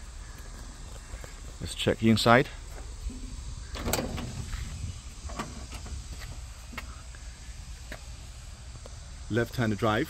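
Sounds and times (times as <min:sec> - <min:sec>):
steady low hum: 0:00.0 - 0:10.0
truck door unlatching and opening: 0:02.8 - 0:06.5.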